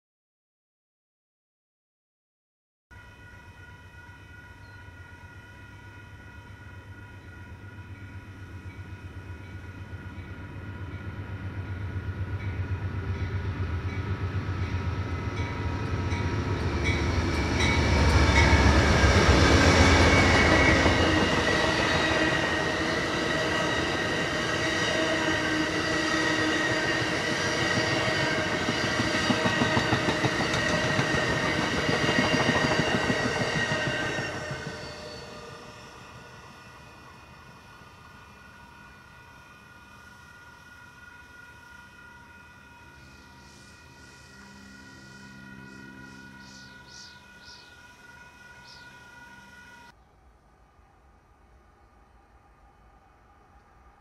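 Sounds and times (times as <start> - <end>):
train cars rolling: 13.2 - 35.8
high wheel squeal: 17.4 - 36.1
steady high tones: 42.6 - 49.9.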